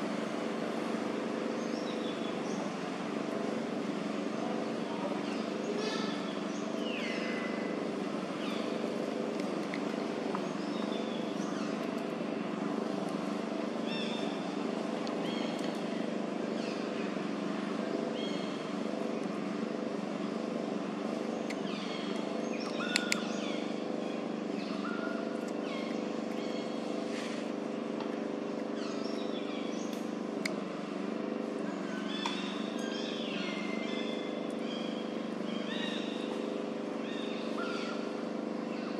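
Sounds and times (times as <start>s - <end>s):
engine hum: 0.0s - 38.9s
sharp clicks: 21.4s - 23.3s.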